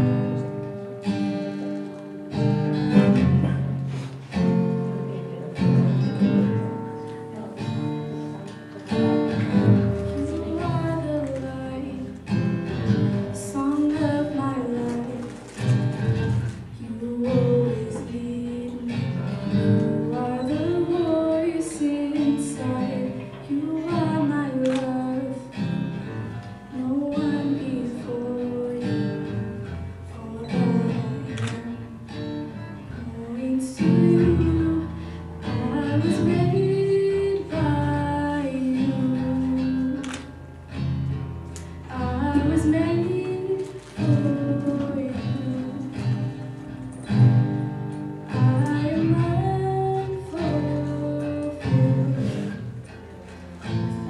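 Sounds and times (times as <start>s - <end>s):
strummed acoustic guitar: 0.0s - 54.0s
woman singing worship song: 16.8s - 18.9s, 33.0s - 40.0s, 48.4s - 52.6s.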